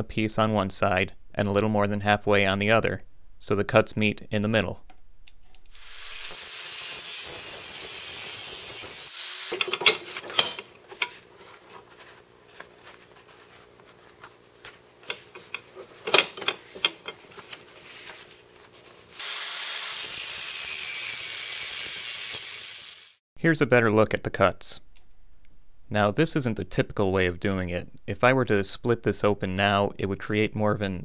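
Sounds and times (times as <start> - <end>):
angle grinder cutting steel: 5.7 - 10.4, 19.2 - 23.1
metal clanks: 9.5 - 11.2, 15.0 - 17.2.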